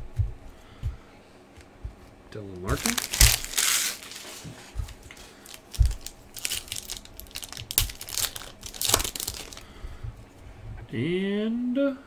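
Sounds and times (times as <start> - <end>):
cards rustling: 2.6 - 9.7
foil wrapper crinkling: 2.7 - 9.7.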